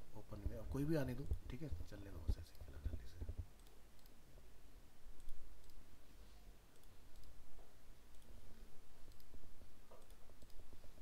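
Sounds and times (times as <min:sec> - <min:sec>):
low steady hum: 0:00.0 - 0:11.0
computer mouse clicking: 0:02.2 - 0:04.2, 0:05.1 - 0:05.9, 0:06.7 - 0:07.4, 0:08.1 - 0:08.4, 0:09.0 - 0:11.0.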